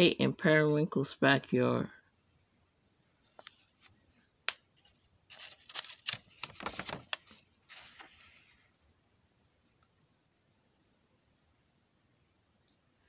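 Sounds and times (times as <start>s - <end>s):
book page turning: 3.3s - 8.7s.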